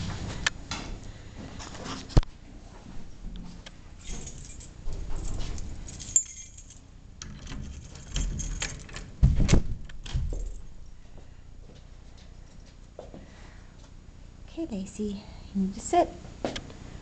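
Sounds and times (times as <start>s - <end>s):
keys jangling: 4.0s - 9.1s, 10.2s - 10.7s.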